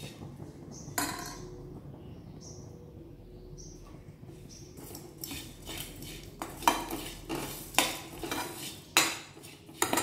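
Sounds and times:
spoon scraping dry lentils in pan: 0:04.7 - 0:10.0
spoon clanking on pan: 0:06.4 - 0:10.0.

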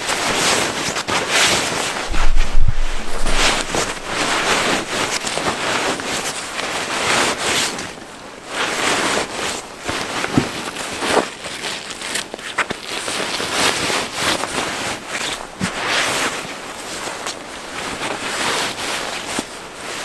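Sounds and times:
person rustling and shuffling: 0:02.1 - 0:06.1.

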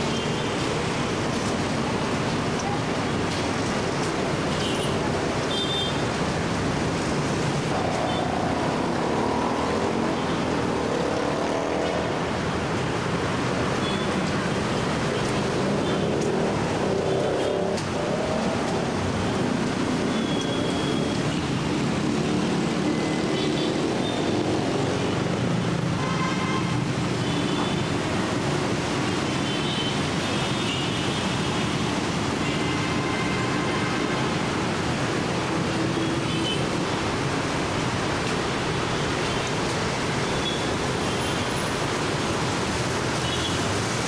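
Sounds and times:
city traffic: 0:00.0 - 0:44.0
motorcycles: 0:06.5 - 0:26.0.

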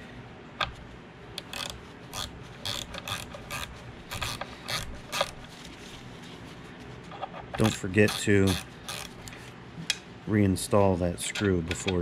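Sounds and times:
ratcheting wrench clicking: 0:01.4 - 0:05.4, 0:07.6 - 0:09.3.

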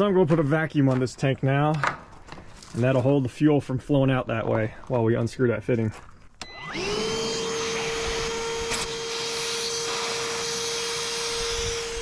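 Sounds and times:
shop vacuum motor whining: 0:06.4 - 0:12.0.

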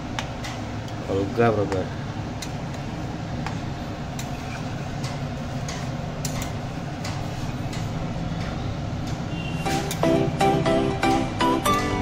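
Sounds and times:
metal spatula scraping a pan: 0:04.2 - 0:04.9.

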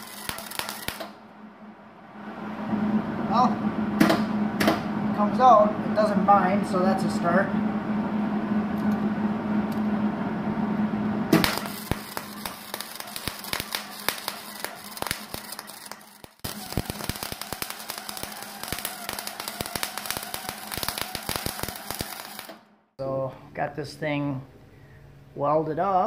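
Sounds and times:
welding arc crackling: 0:00.0 - 0:01.2, 0:11.3 - 0:22.7
steady hum: 0:00.0 - 0:26.0.

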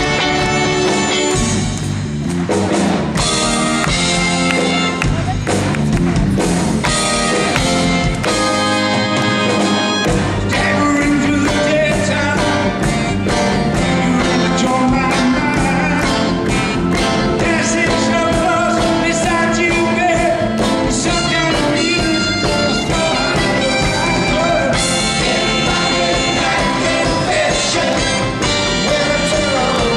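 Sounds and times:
drums: 0:00.0 - 0:29.9
guitar: 0:00.0 - 0:29.9
live rock band playing: 0:00.0 - 0:29.9
person singing: 0:10.5 - 0:29.9.

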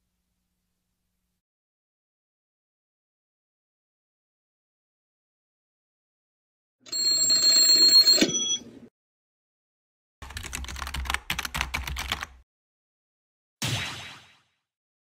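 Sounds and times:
high ringing tones: 0:06.9 - 0:08.8
sharp cartoon hit: 0:13.6 - 0:14.5.

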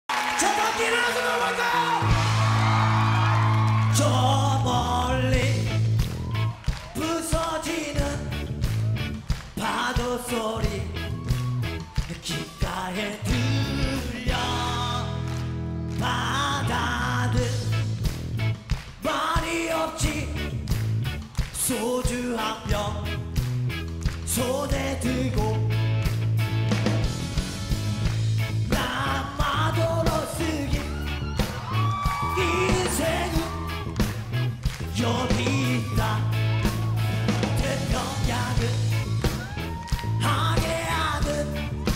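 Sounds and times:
live rock band playing: 0:00.8 - 0:41.9
electric guitar: 0:01.7 - 0:41.9
bass guitar: 0:01.8 - 0:41.9
steady drum beat: 0:01.9 - 0:04.3, 0:17.3 - 0:41.9
man singing: 0:03.8 - 0:06.1, 0:06.8 - 0:08.6, 0:09.5 - 0:18.0, 0:19.0 - 0:20.6, 0:21.5 - 0:23.4, 0:24.2 - 0:26.0, 0:28.5 - 0:34.0, 0:34.7 - 0:41.9.

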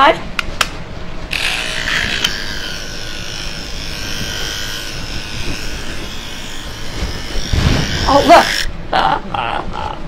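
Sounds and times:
electric clippers buzzing: 0:01.3 - 0:08.7.

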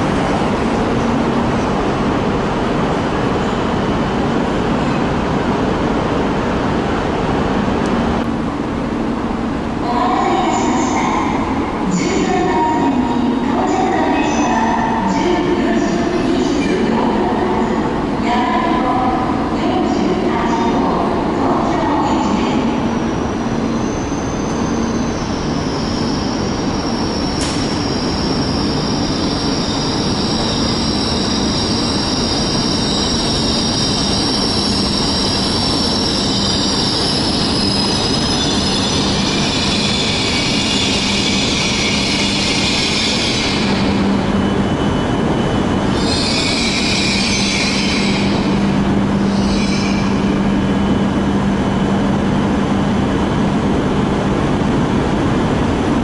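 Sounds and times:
train rumbling and whining: 0:00.0 - 0:56.0
train brakes squealing and hissing: 0:23.3 - 0:44.0, 0:45.9 - 0:48.5, 0:49.2 - 0:50.2.

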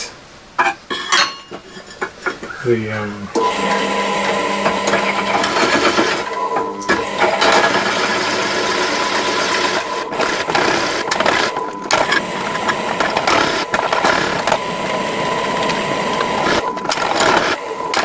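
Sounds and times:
drill press cutting: 0:03.3 - 0:18.0.

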